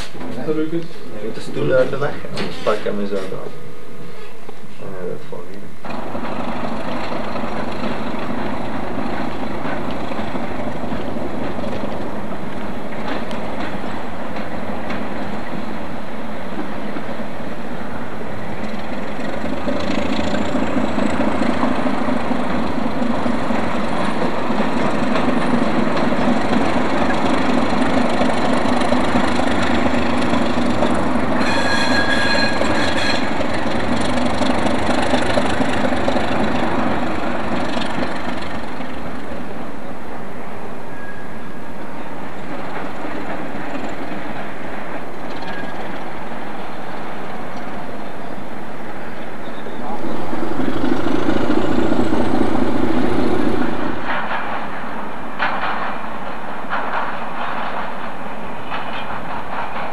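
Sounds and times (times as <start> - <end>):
diesel locomotive engine running: 0.0 - 59.9
rail noise: 0.0 - 59.9
high steady tone: 2.9 - 5.8.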